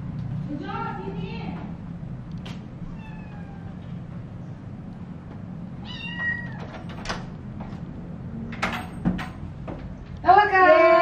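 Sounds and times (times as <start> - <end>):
kitten meowing: 2.9 - 3.8, 5.8 - 6.6.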